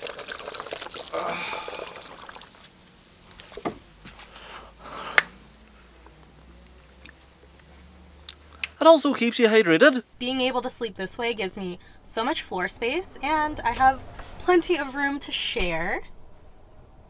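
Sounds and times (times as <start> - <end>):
liquid pouring into plastic bottle: 0.0 - 2.6.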